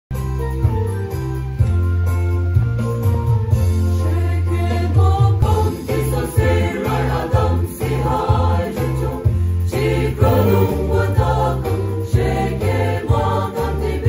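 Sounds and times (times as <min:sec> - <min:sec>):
mixed choir singing: 0:04.1 - 0:14.0
bass line on steady beat: 0:10.2 - 0:11.4.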